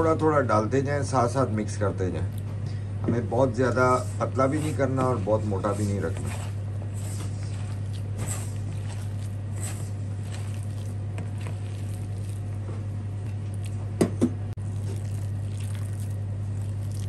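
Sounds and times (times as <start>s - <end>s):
steady low hum: 0.0s - 17.0s
hand squelching batter in bowl: 3.7s - 14.0s, 14.6s - 17.0s.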